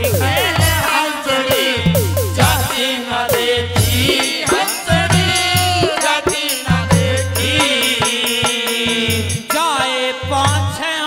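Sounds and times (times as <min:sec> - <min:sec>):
deep bass line: 0:00.0 - 0:00.9, 0:01.8 - 0:02.8
bending melody line: 0:00.0 - 0:02.9
drum strokes: 0:00.0 - 0:09.6.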